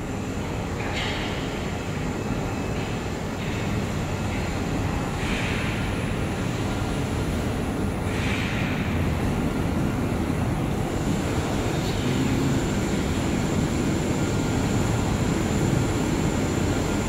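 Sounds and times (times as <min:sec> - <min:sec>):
laser cutting machine rumble: 0:01.6 - 0:17.0.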